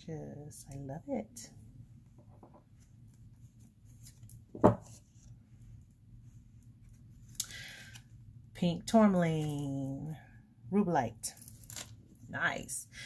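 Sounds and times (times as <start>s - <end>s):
stone knocking on wooden table: 4.6s - 4.9s.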